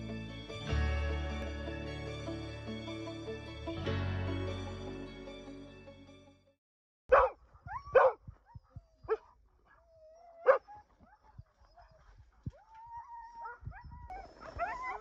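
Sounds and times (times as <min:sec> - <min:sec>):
dogs barking: 0:07.1 - 0:09.8, 0:10.4 - 0:12.6
dog whining: 0:07.1 - 0:15.0
dogs yipping: 0:07.1 - 0:15.0.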